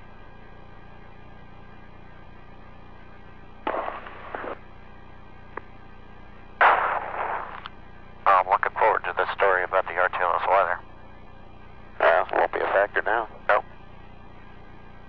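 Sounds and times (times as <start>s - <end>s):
faint audio line hum: 0.0s - 15.0s
radio static bursts: 3.7s - 4.6s, 6.6s - 7.7s, 12.0s - 13.7s.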